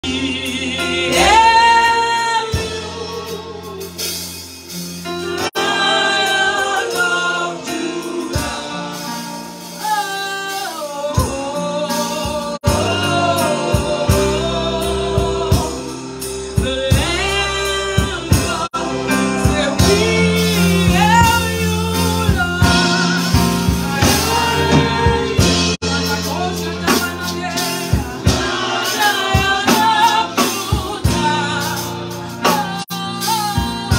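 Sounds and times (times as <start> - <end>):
woman singing into a microphone: 28.9 - 33.9.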